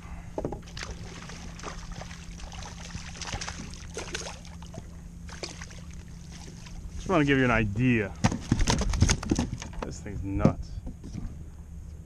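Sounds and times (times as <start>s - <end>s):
fish splashing at water surface: 0.7s - 6.8s.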